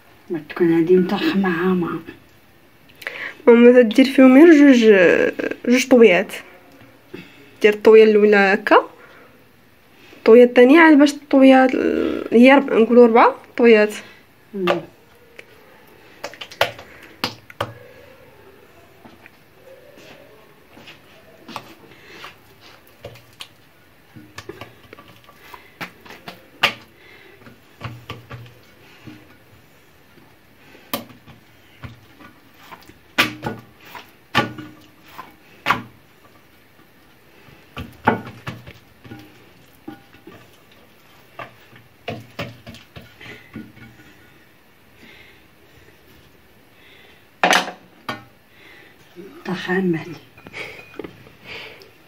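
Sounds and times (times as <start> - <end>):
hands patting dough on plate: 16.1 - 17.9, 20.0 - 44.4.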